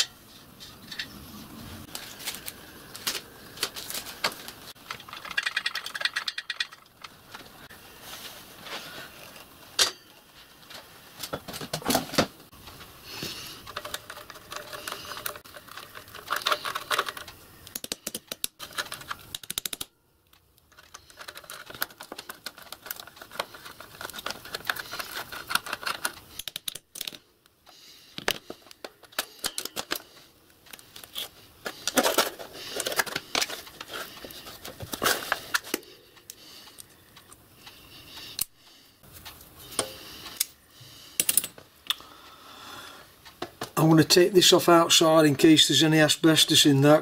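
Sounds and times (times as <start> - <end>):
metallic clicks taps and scraping: 3.0 - 7.5, 12.8 - 40.6, 41.2 - 42.0
loose metal bands rattling: 3.8 - 7.6.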